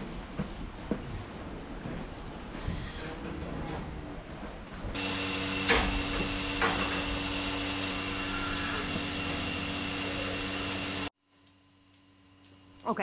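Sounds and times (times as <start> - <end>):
vacuum pump humming: 5.0 - 12.8.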